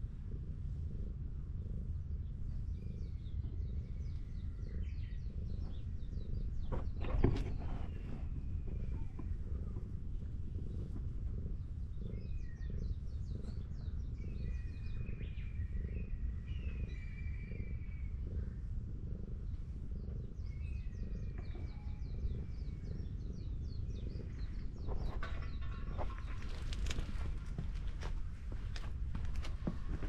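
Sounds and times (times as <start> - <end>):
cat purring: 0.0 - 30.0
birds chirping and whistling: 2.8 - 9.4, 12.0 - 18.3, 19.4 - 27.3
rustling clatter: 24.8 - 30.0.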